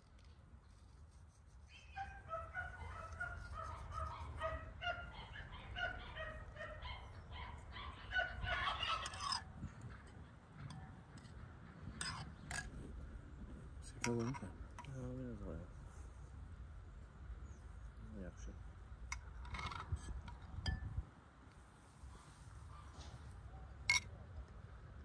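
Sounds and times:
fowl calling: 1.7 - 9.4.

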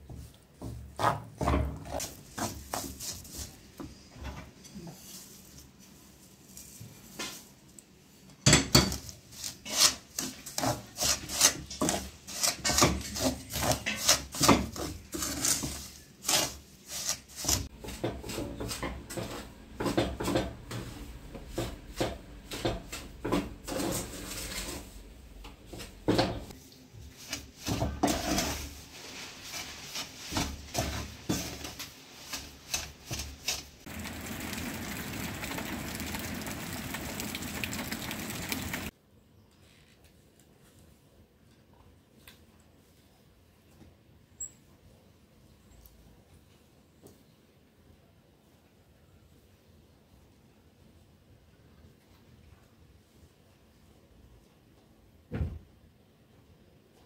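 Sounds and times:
wood rubbing and scraping: 29.6 - 38.9.

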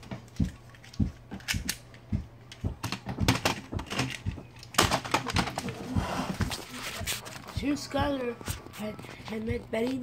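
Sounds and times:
plastic toys knocking together: 2.5 - 5.9.

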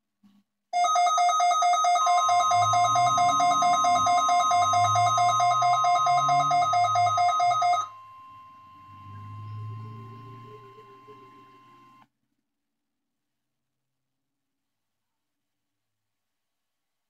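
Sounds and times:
pulsing two-tone alarm beep: 2.0 - 12.0
steady warning tone: 2.0 - 12.0.

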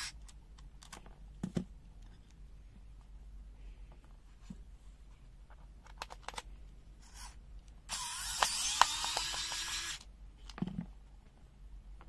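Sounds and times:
screwdriver ratcheting and grinding: 7.9 - 10.1.

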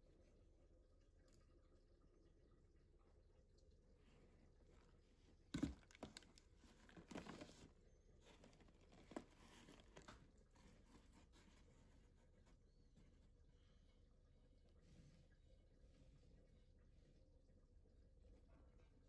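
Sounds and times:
pastry layer crackling and rustling: 4.0 - 13.4.

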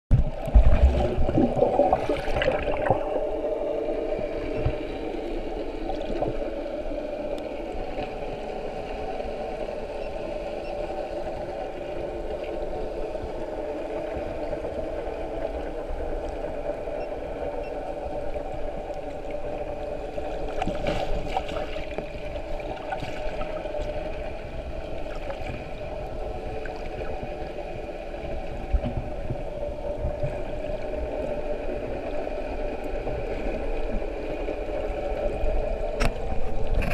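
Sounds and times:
underwater droning hum: 0.1 - 36.9
water rushing and bubbling: 0.1 - 36.9.

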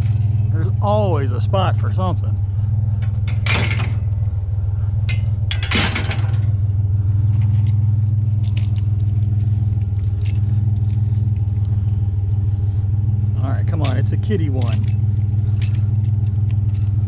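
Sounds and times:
pickup truck engine idling: 0.0 - 17.0
metal toy stroller clinking and rattling: 7.5 - 11.7, 13.4 - 17.0.

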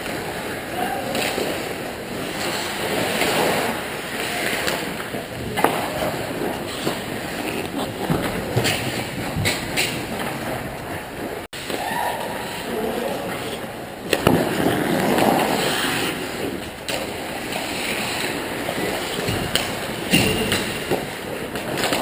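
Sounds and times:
hockey sticks and puck clacking: 0.0 - 22.0
skate blades scraping ice: 0.0 - 22.0.

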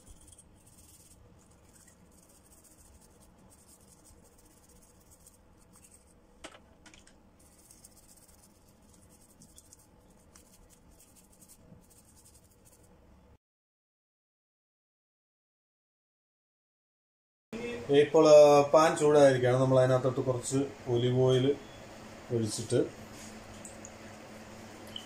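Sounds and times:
toothbrush scrubbing a shell: 0.0 - 6.2, 7.4 - 12.9.

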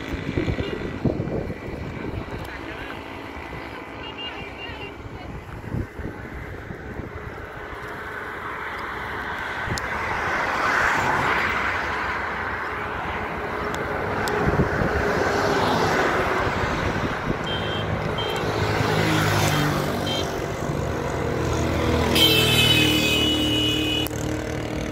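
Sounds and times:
wind on microphone: 0.0 - 3.8, 4.9 - 8.1, 13.3 - 18.9
passing traffic: 0.0 - 24.9
vehicle engine hum: 0.0 - 24.9.

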